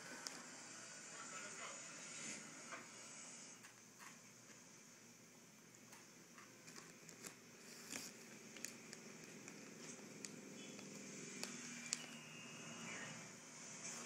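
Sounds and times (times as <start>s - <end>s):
plastic bag crinkling: 6.6s - 12.2s.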